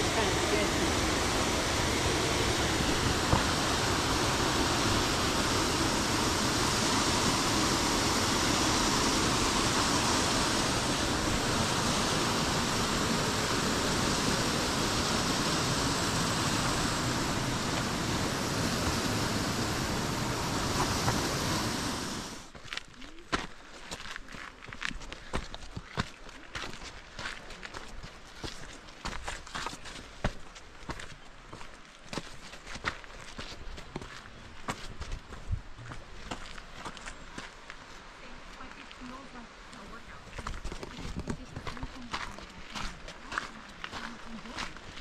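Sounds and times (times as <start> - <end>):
footsteps on rocky trail: 0.0 - 8.3, 22.4 - 45.0
waterfall and creek rushing: 0.0 - 22.5, 34.4 - 45.0.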